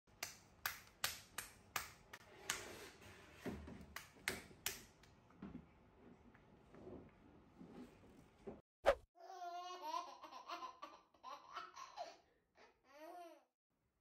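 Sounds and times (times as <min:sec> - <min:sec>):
sharp taps or slaps: 0:00.1 - 0:02.6.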